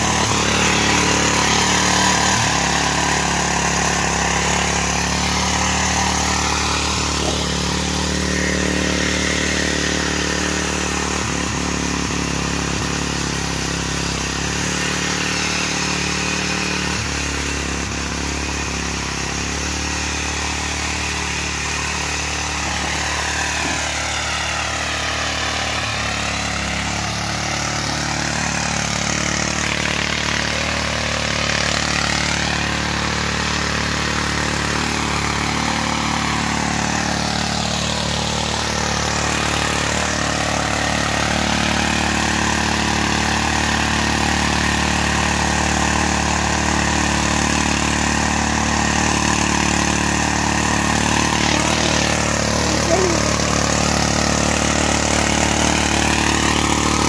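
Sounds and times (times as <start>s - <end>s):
rotary tiller engine running: 0.0s - 57.0s.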